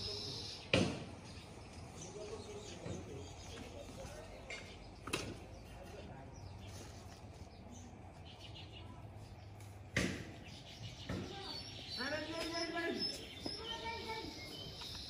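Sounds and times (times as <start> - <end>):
faint distant voices: 0.0 - 15.0
sharp knock: 0.7 - 1.1, 9.9 - 10.4.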